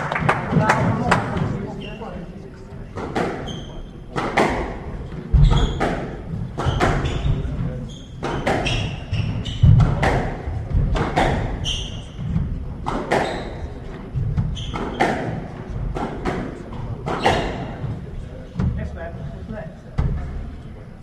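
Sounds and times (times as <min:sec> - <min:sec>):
shoes squeaking on wooden floor: 0:03.2 - 0:04.0, 0:05.1 - 0:18.1
squash ball cracking off rackets and walls: 0:04.1 - 0:17.9.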